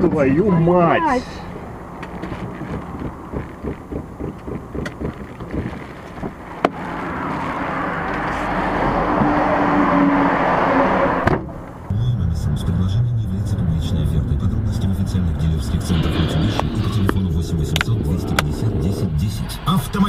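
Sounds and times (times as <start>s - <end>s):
rushing road and wind noise: 0.0s - 11.9s, 14.9s - 20.0s
car engine and road noise: 0.0s - 20.0s.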